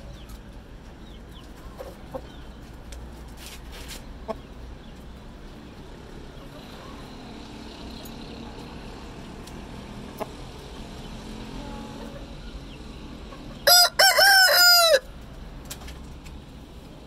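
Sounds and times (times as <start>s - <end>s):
rooster crowing: 13.6s - 15.1s.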